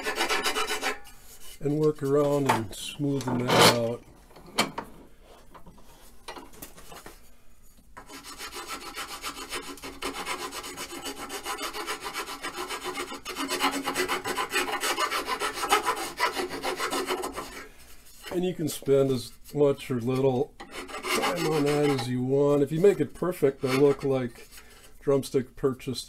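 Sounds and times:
hand file rasping on wood: 0.0 - 1.1, 8.0 - 18.4, 20.6 - 22.2, 22.8 - 24.6.

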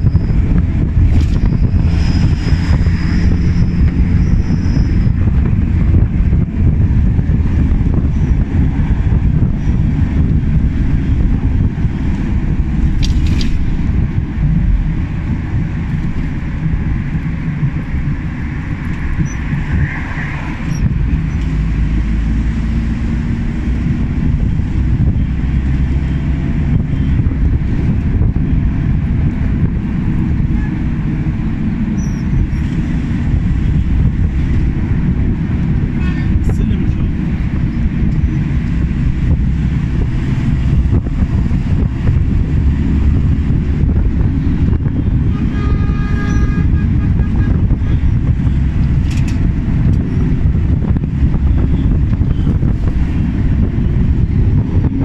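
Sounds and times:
vehicle engine and road rumble: 0.0 - 55.0.

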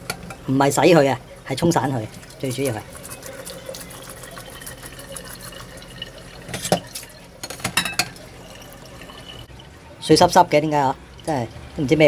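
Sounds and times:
tap water running into colander: 2.0 - 12.0.

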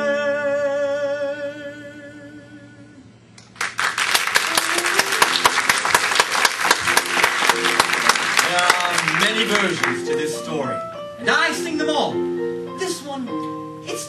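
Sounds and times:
audience applause: 3.6 - 10.2
guitar accompaniment: 4.5 - 5.9, 6.6 - 14.0.

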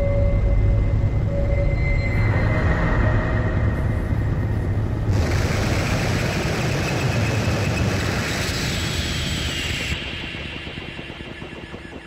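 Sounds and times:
heavy low rumble: 2.2 - 12.0
distorted electronic noise: 5.0 - 12.0.

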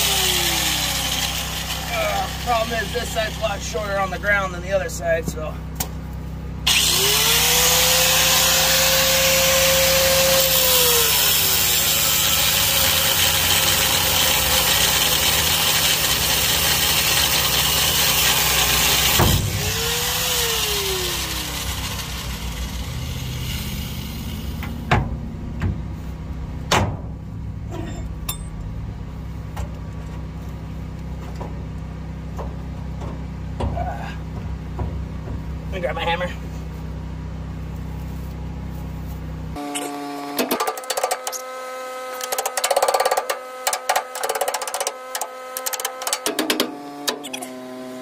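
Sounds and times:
angle grinder cutting steel: 0.0 - 3.7, 6.7 - 24.9
metal clinks: 27.7 - 28.6.

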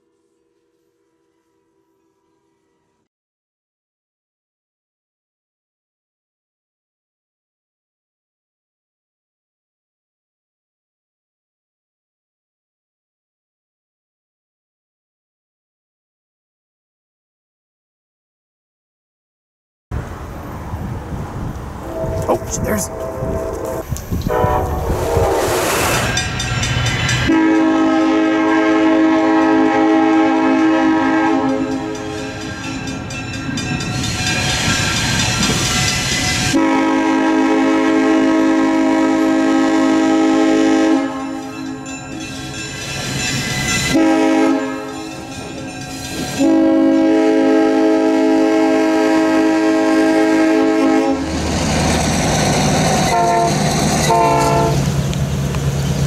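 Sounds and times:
locomotive air horn blasts: 21.8 - 26.2, 27.3 - 32.4, 36.5 - 41.6, 43.9 - 45.1, 46.3 - 51.3, 53.0 - 54.9.

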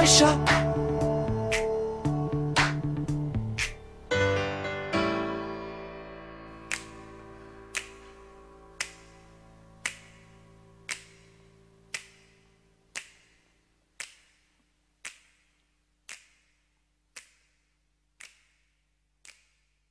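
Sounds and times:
pop song chord: 0.0 - 9.8
finger snaps: 0.5 - 0.9, 1.5 - 3.9, 6.6 - 19.8.

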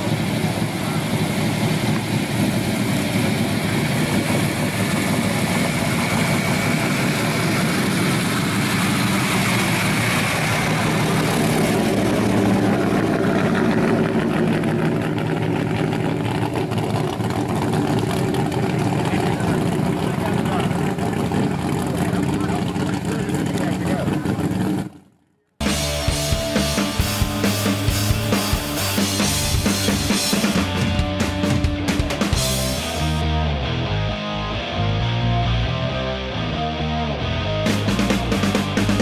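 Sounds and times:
pickup truck engine running: 0.0 - 35.8, 36.6 - 39.0.

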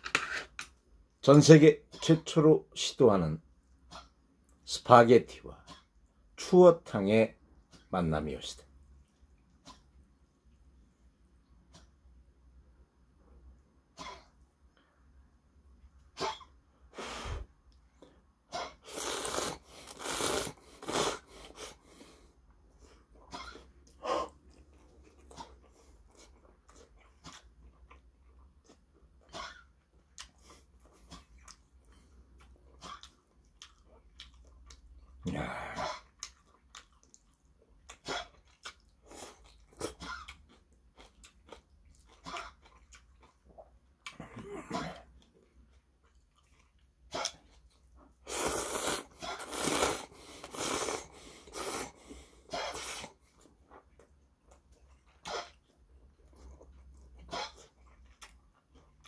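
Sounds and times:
man slurping noodles: 18.8 - 21.8, 48.2 - 53.2
chewing: 22.8 - 35.2, 35.8 - 59.0.

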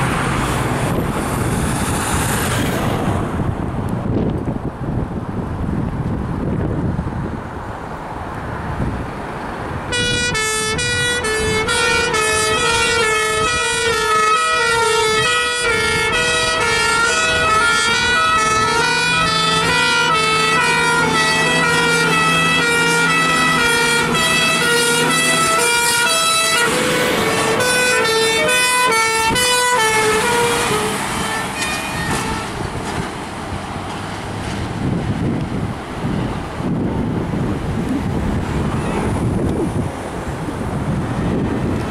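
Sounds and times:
road and wind noise: 0.0 - 41.9
truck engines rumbling: 0.0 - 41.9
two-tone fire engine sirens: 9.9 - 32.6
long low horn blast: 9.9 - 32.8.

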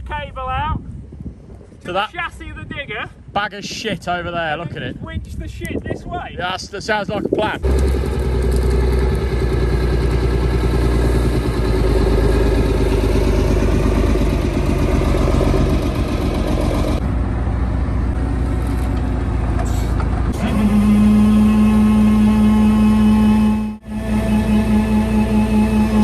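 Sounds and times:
truck diesel engine running: 7.6 - 26.0
steady humming tone: 20.4 - 26.0.

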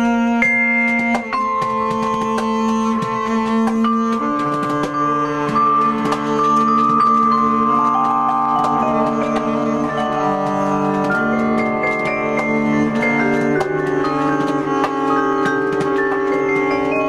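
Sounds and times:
vibraphone played with mallets: 5.8 - 17.0.

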